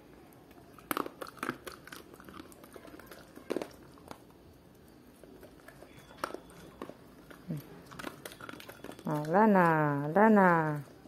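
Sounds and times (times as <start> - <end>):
dog chewing: 0.3 - 11.0.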